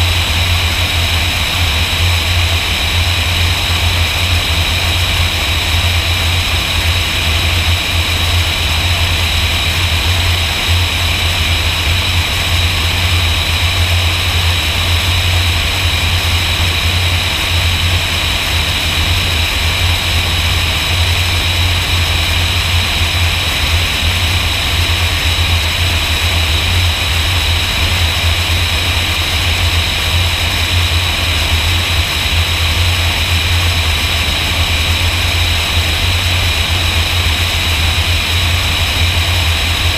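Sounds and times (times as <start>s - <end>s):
propeller airplane engine drone: 0.0s - 39.9s.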